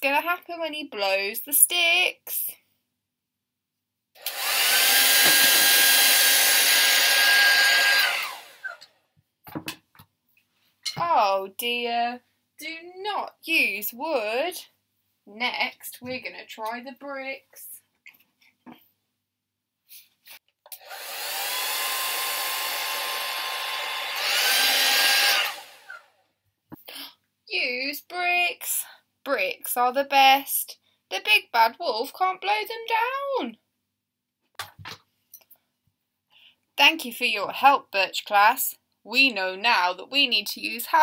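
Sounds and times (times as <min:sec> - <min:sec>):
hairdryer running with whine: 0:04.2 - 0:08.8, 0:20.7 - 0:26.1.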